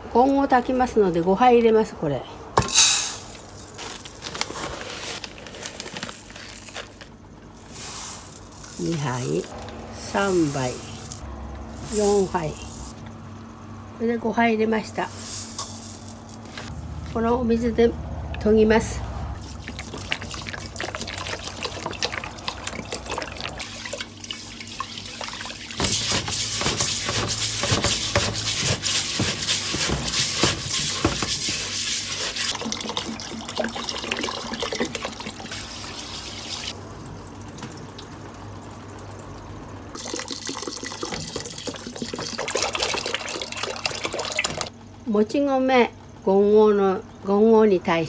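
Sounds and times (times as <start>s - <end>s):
water pouring from bottle: 19.4s - 27.5s, 29.7s - 36.7s, 40.0s - 44.7s
wet rice grains swishing: 19.4s - 32.8s.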